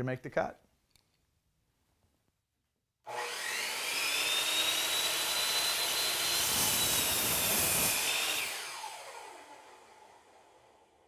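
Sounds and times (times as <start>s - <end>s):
saw blade cutting wood: 3.1s - 10.2s
miter saw motor whining: 3.1s - 10.8s.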